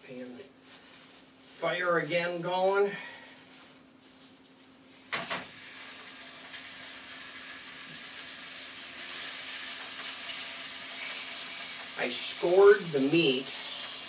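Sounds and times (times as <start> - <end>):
meat sizzling in a skillet: 5.4 - 14.0.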